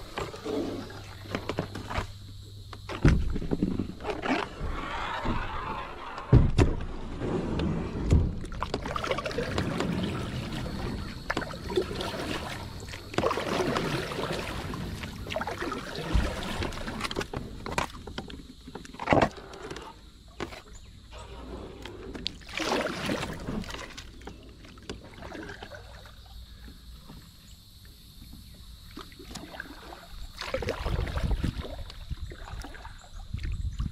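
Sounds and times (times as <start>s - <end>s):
branches scraping along kayak hull: 2.8s - 25.9s
paddle strokes splashing: 8.4s - 20.7s, 21.4s - 26.2s, 28.9s - 33.5s.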